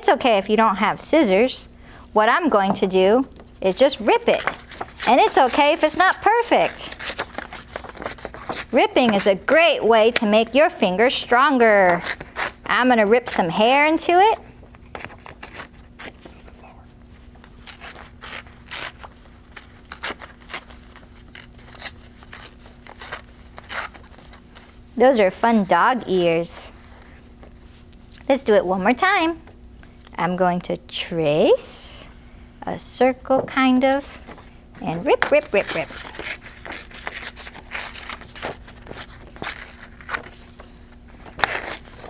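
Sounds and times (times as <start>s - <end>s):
paper tearing by hand: 4.1s - 9.4s, 11.9s - 12.7s, 14.9s - 16.5s, 17.6s - 24.7s, 35.2s - 40.5s, 41.2s - 42.0s.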